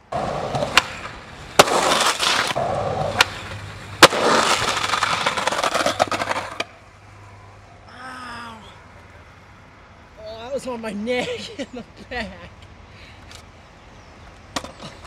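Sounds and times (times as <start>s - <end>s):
skateboard wheels rolling on asphalt: 0.0s - 7.3s, 12.4s - 15.0s
skateboard popping and landing: 0.1s - 6.8s, 14.5s - 15.0s.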